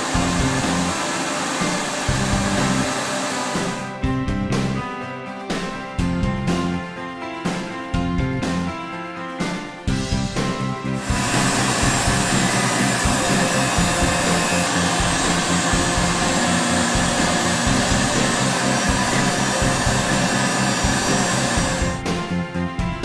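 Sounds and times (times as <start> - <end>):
bit cutting copper board: 0.0 - 3.9, 11.0 - 22.0
milling spindle motor whirr: 0.0 - 3.9, 11.0 - 22.0
background music: 0.0 - 23.0.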